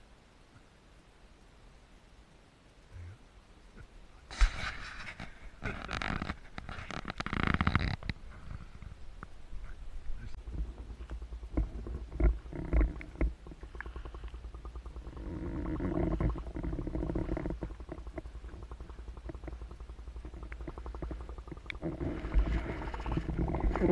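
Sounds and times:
low underwater rumbling: 5.1s - 23.9s
rapid regular ticking: 5.6s - 23.9s
underwater knocks: 10.5s - 23.9s.

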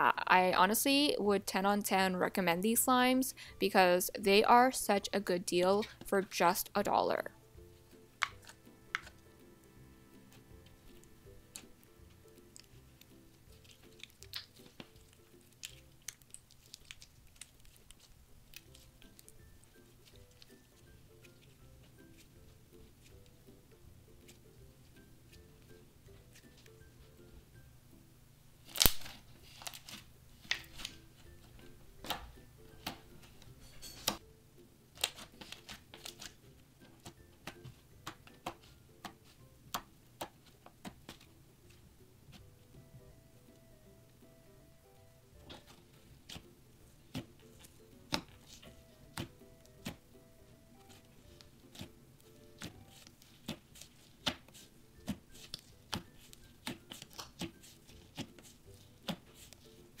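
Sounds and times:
slime squished by hand: 13.5s - 19.3s.

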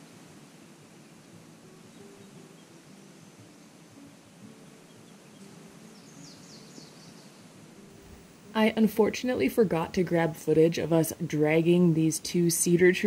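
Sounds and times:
faint outdoor ambience: 0.0s - 13.0s
bird chirping: 1.8s - 8.2s.

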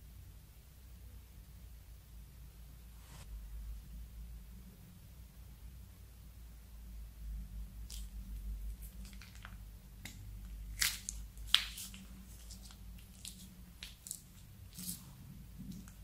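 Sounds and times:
plastic piping bag crinkling: 7.8s - 16.0s.

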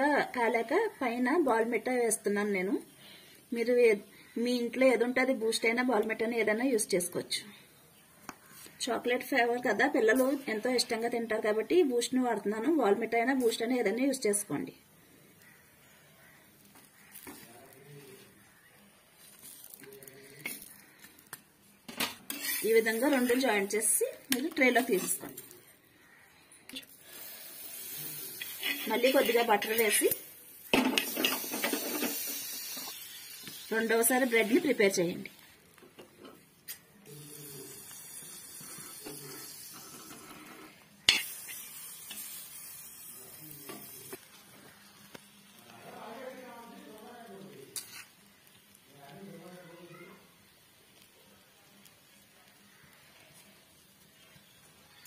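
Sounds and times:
bread sizzling in butter: 15.1s - 26.2s, 26.8s - 55.0s
spatula scraping and tapping pan: 20.4s - 23.5s, 28.4s - 29.9s, 30.7s - 33.6s, 38.5s - 42.4s
metal spoon tapping and scraping pan: 28.4s - 29.9s, 30.7s - 33.6s, 41.1s - 42.3s.

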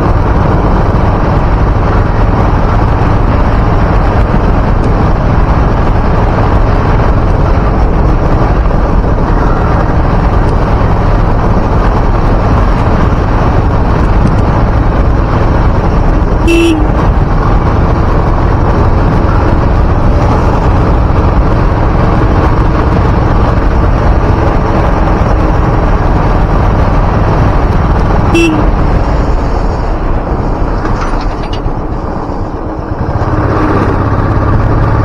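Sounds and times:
motorcycle engine: 0.0s - 35.0s
wind noise on microphone: 0.0s - 35.0s
short horn beep: 16.4s - 17.0s, 28.3s - 28.8s.

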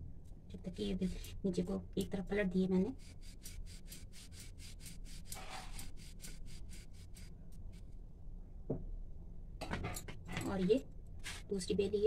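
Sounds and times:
rolling pin rubbing on dough: 2.8s - 7.4s.

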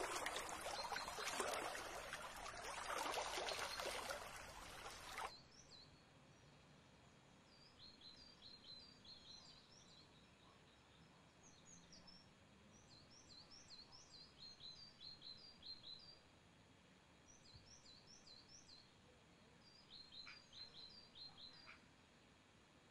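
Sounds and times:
songbirds chirping: 0.0s - 16.3s.

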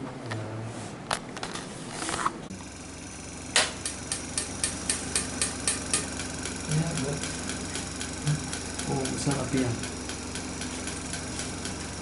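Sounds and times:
steady machine hum: 2.4s - 12.0s
regular sharp clicks: 3.6s - 12.0s.

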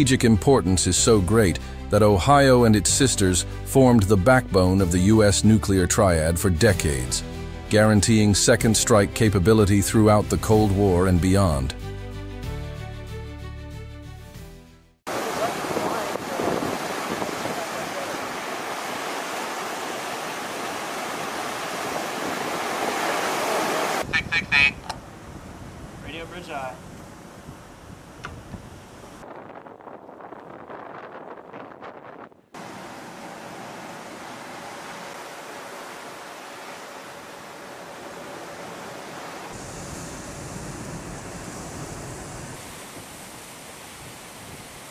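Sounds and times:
sea waves: 15.1s - 29.2s, 32.5s - 44.9s
seawater rushing over bow: 15.1s - 44.9s
wind on microphone: 15.4s - 18.8s, 23.6s - 32.6s, 39.5s - 44.9s.

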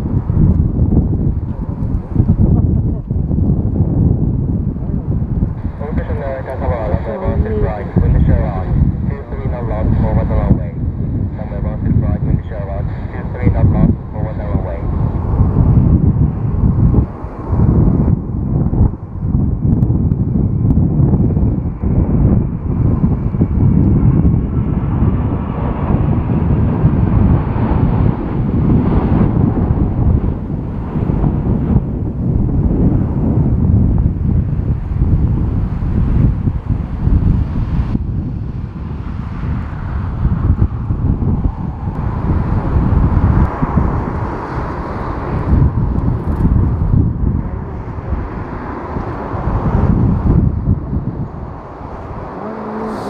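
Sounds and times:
jet engines rumbling: 0.0s - 53.0s
wind buffeting microphone: 0.0s - 53.0s.

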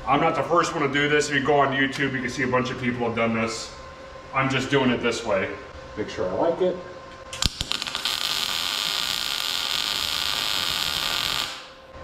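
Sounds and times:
welding arc clicks: 7.3s - 11.8s
welder hissing: 7.4s - 11.8s.

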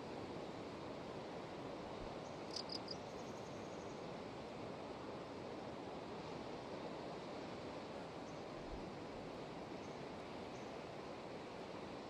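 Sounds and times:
faint insect buzz: 2.4s - 3.8s.

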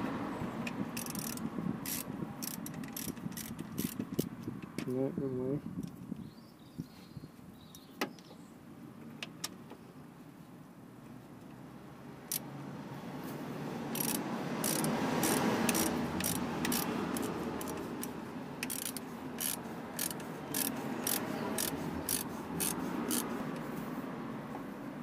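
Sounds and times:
socket ratchet clicking: 0.7s - 4.5s, 12.2s - 12.5s, 13.9s - 23.3s.

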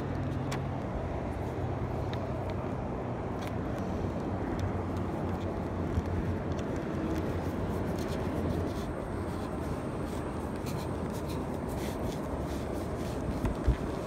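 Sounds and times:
low background rumble: 0.0s - 14.0s
sleeve and hand rustling: 5.1s - 14.0s.

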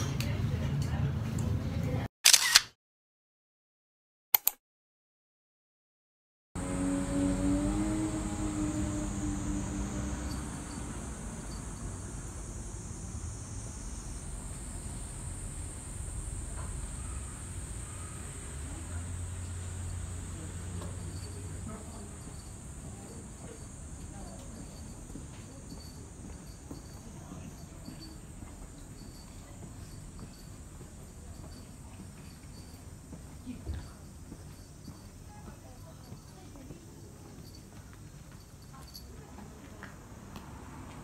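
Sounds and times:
low rumble: 6.6s - 25.1s
cicadas droning: 6.6s - 41.0s.

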